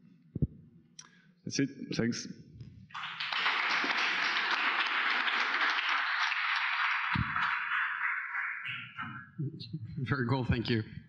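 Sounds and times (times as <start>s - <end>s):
audience applauding: 2.9s - 9.2s.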